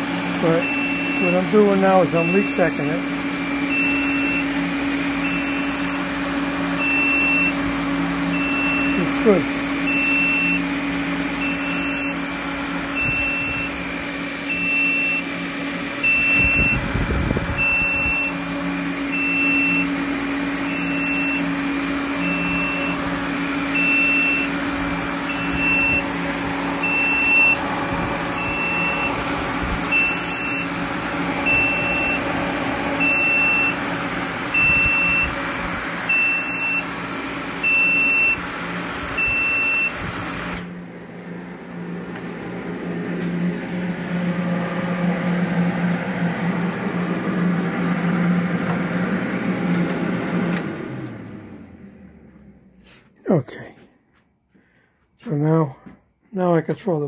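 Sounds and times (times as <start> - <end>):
pump motor and fan humming: 0.0 - 53.1
high-pitched alarm beep: 0.4 - 3.0, 3.7 - 4.6, 5.2 - 6.0, 6.8 - 7.6, 8.3 - 10.8, 11.4 - 12.2, 12.9 - 13.8, 14.5 - 15.3, 16.0 - 16.9, 17.6 - 18.4, 19.1 - 19.9, 20.6 - 21.6, 22.2 - 23.0, 23.7 - 24.5, 25.3 - 26.1, 26.8 - 27.6, 28.4 - 29.2, 29.9 - 30.7, 31.4 - 32.3, 33.0 - 33.8, 34.5 - 35.4, 36.1 - 36.9, 37.6 - 38.5, 39.2 - 40.1.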